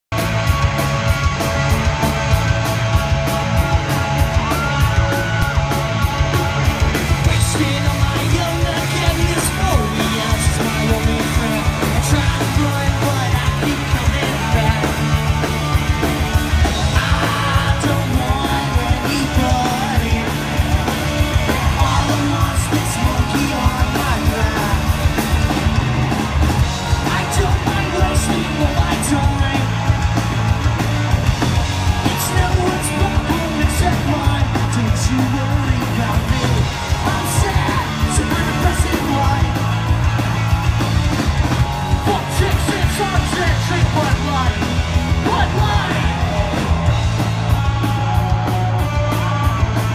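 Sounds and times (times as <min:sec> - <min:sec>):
bass guitar: 0:00.0 - 0:49.9
drums: 0:00.0 - 0:49.9
electric guitar: 0:00.1 - 0:49.9
singer yelling into microphone: 0:32.0 - 0:39.8, 0:42.0 - 0:46.8.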